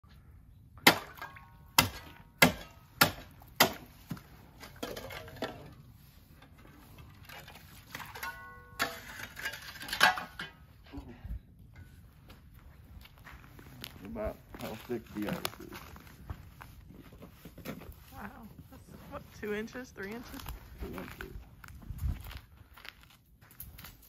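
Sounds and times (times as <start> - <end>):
shovel striking ice: 0.8 - 5.7, 7.3 - 10.5.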